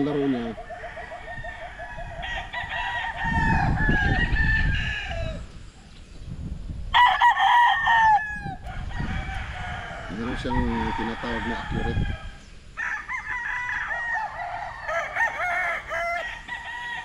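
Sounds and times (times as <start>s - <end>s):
roosters crowing: 0.0s - 5.6s, 6.9s - 17.0s.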